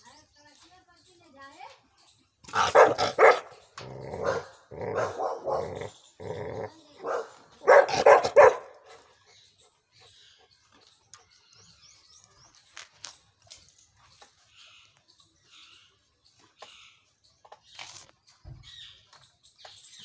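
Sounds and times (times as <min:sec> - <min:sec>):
dog barking: 0:02.5 - 0:03.6, 0:04.2 - 0:05.9, 0:07.0 - 0:08.9.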